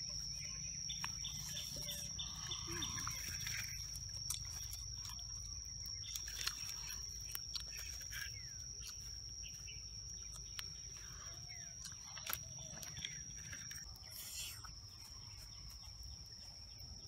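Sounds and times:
bird chirps: 0.0s - 17.0s
steady high-pitched tone: 0.0s - 17.0s
sticks clicking in a campfire: 3.4s - 9.2s.

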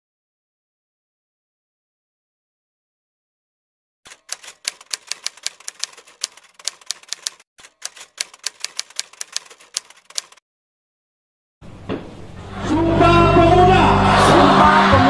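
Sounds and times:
typewriter keystroke clicks: 4.1s - 10.4s.

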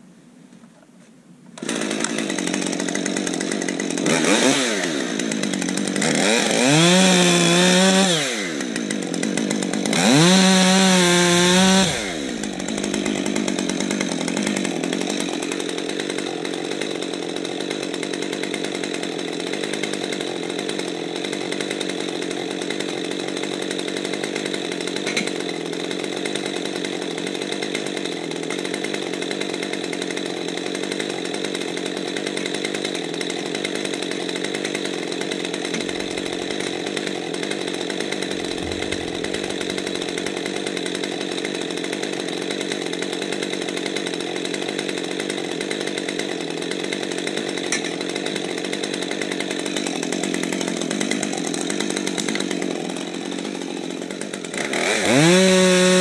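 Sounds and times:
chainsaw idling: 1.6s - 56.0s.

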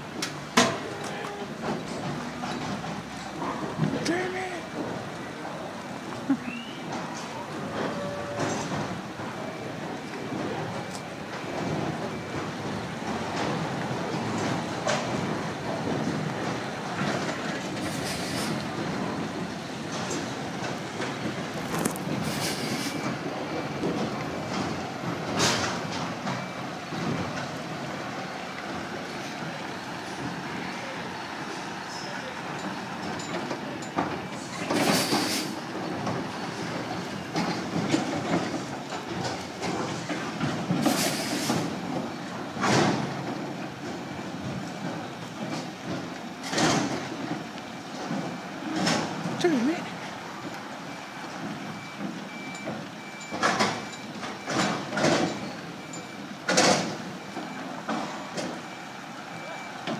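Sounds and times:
diesel truck engine running: 0.0s - 59.9s
steel trailers rattling: 0.0s - 59.9s
air brake hiss: 17.8s - 18.6s, 22.2s - 23.0s, 34.8s - 35.6s, 40.8s - 41.7s.

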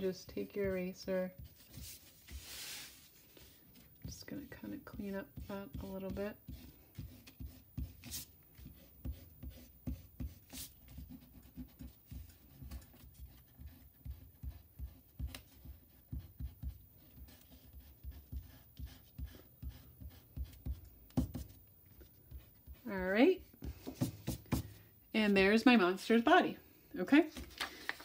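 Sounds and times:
eraser rubbing on paper: 0.4s - 21.6s.

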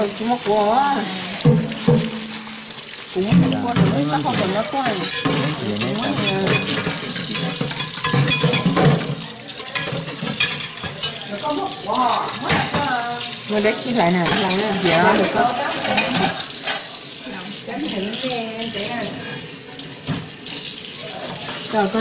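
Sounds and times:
voices talking: 0.0s - 1.5s, 3.1s - 7.6s, 9.2s - 16.4s
frying hiss: 0.0s - 22.0s.

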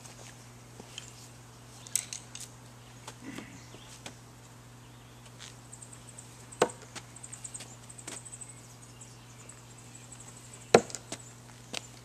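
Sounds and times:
insects chirping: 4.8s - 12.0s.

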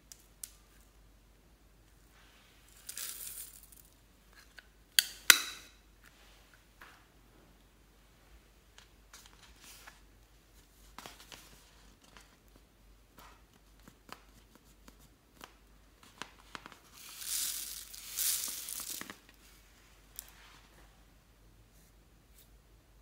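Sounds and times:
glitter pouring rustling hiss: 2.1s - 4.0s, 16.7s - 20.5s
plastic toy crinkling and clicking: 16.1s - 19.4s.

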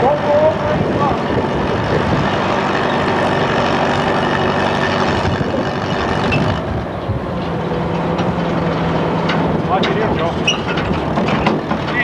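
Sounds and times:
engine running steadily: 0.0s - 12.0s.

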